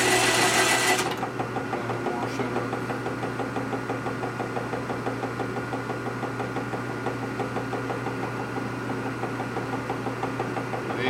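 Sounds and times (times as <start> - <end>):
machine tool humming: 0.0 - 1.2.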